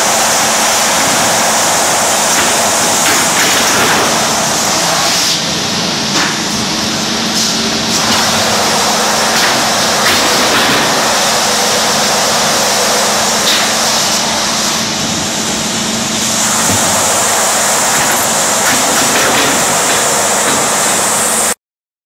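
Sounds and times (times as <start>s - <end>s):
sanding machine rushing noise: 0.0s - 5.9s, 6.8s - 21.6s.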